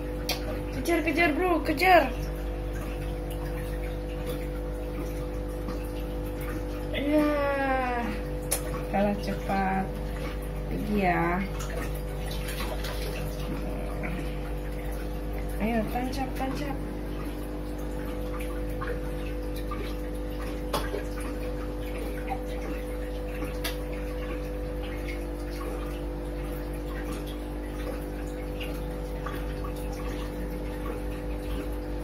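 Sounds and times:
aquarium filter humming: 0:00.0 - 0:32.0
water bubbling and trickling: 0:00.0 - 0:32.0.

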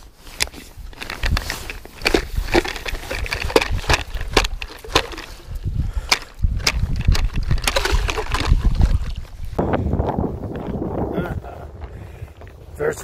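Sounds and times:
ice auger blades crunching ice: 0:00.2 - 0:09.6
low rumble: 0:08.5 - 0:12.9.

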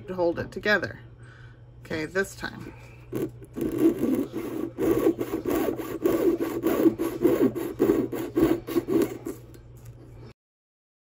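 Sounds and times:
saw cutting wire: 0:03.1 - 0:09.5.

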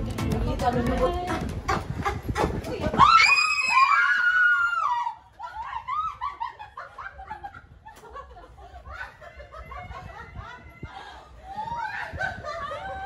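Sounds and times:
woman screaming: 0:03.0 - 0:06.2.

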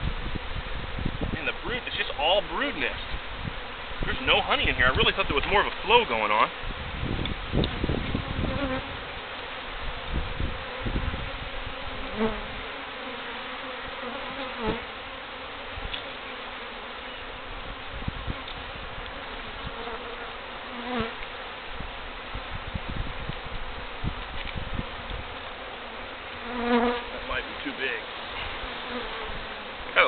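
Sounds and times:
bees buzzing: 0:00.0 - 0:30.0
single bees whining past: 0:06.6 - 0:21.6, 0:23.4 - 0:27.6, 0:28.3 - 0:29.9.

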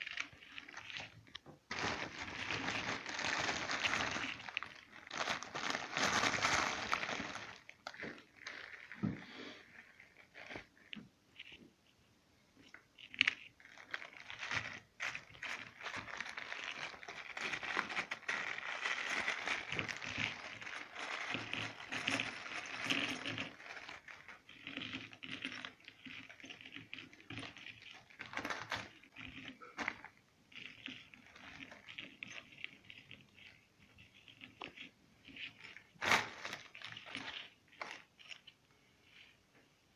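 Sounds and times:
plastic bag crinkling: 0:00.0 - 0:11.6, 0:12.6 - 0:39.4.

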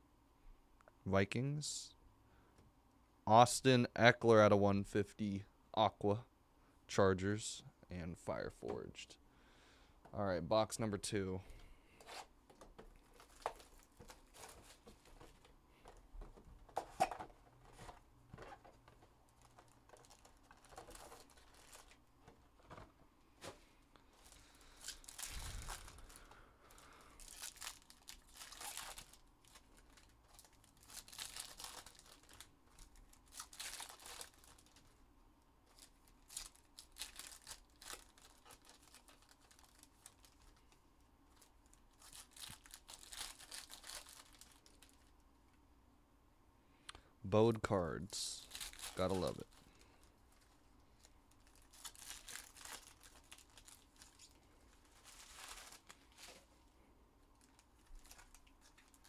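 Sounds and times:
shrink wrap crinkling and tearing: 0:12.1 - 0:16.0, 0:16.8 - 0:22.0, 0:24.1 - 0:35.0, 0:35.6 - 0:45.2, 0:48.2 - 0:56.6, 0:57.3 - 0:59.0
foil packs ripping and crumpling: 0:13.1 - 0:15.4, 0:17.8 - 0:22.0, 0:24.2 - 0:34.9, 0:35.7 - 0:40.7, 0:41.3 - 0:45.1, 0:48.4 - 0:50.5, 0:51.3 - 0:56.5, 0:57.4 - 0:59.0.

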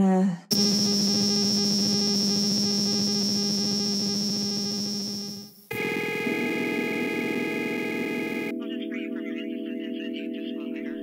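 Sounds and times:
pulsing synthesizer drone: 0:00.5 - 0:08.5
sustained synth tone: 0:00.5 - 0:08.5.

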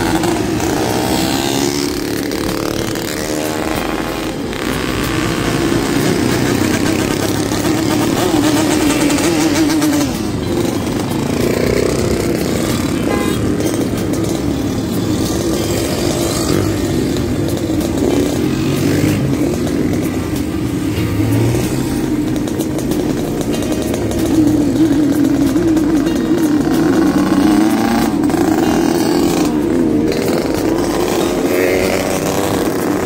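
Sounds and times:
motorcycles and scooters riding past: 0:00.0 - 0:33.0.

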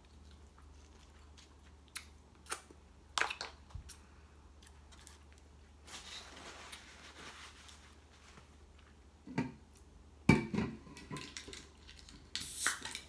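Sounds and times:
can tab opening hiss: 0:12.3 - 0:13.0.

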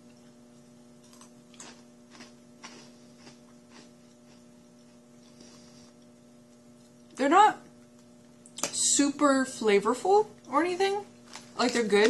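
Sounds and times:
crunching of fried potato sticks: 0:00.0 - 0:06.1
steady low hum: 0:00.0 - 0:12.0.

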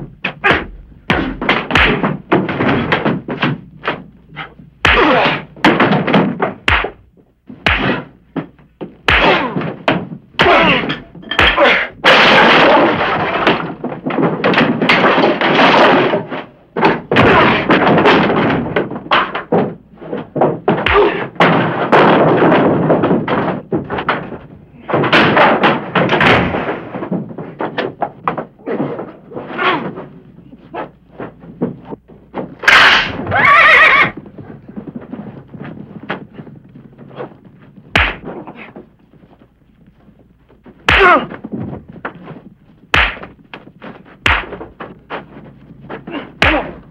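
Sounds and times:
wooden furniture crashing: 0:00.0 - 0:46.9
punch thuds: 0:00.1 - 0:04.1, 0:04.8 - 0:12.5, 0:20.8 - 0:21.5, 0:37.9 - 0:38.4, 0:40.9 - 0:41.4, 0:42.9 - 0:43.4, 0:44.2 - 0:44.9, 0:46.1 - 0:46.9.

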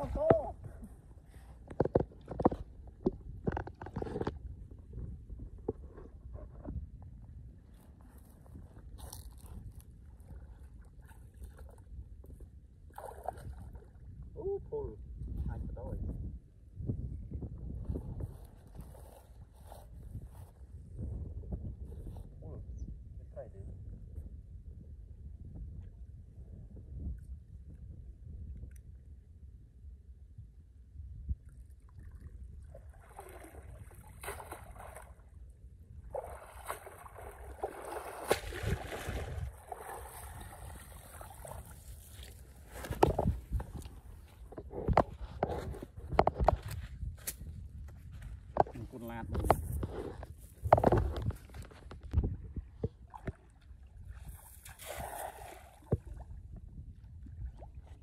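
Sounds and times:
muddy water splashing: 0:12.9 - 0:14.0, 0:31.8 - 0:35.4, 0:36.1 - 0:44.6, 0:53.0 - 0:56.3.

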